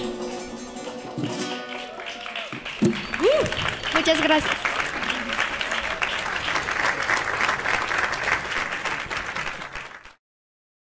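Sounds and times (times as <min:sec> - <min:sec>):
audience applauding: 0:01.1 - 0:10.2.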